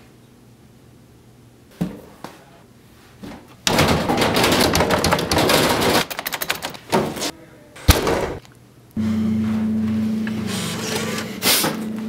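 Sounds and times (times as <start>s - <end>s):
vending machine mechanism clattering: 3.6s - 8.4s.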